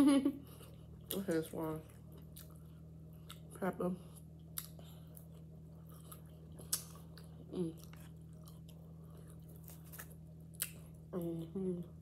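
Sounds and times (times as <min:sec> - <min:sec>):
steady low hum: 0:00.0 - 0:12.0
woman chewing: 0:01.9 - 0:11.1.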